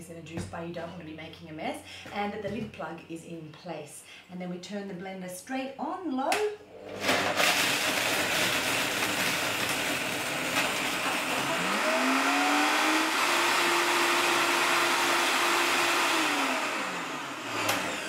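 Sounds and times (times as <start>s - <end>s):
blender crushing ice: 6.9s - 18.0s.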